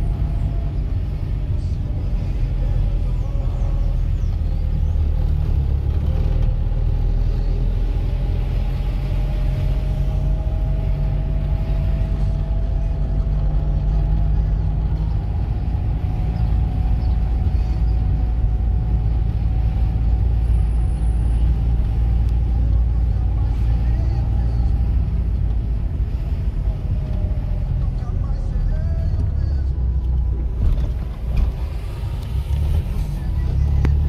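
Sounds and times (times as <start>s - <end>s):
car engine inside cabin: 0.0s - 34.0s
road noise: 0.0s - 34.0s.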